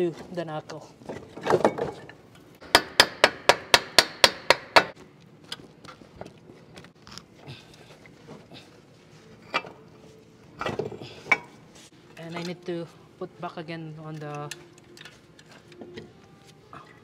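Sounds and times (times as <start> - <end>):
hammer striking metal: 2.6 - 5.0.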